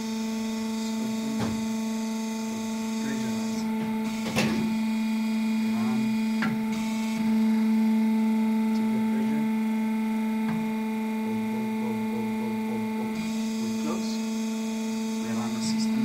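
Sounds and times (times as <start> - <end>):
electric motor and pump humming: 0.0 - 16.0.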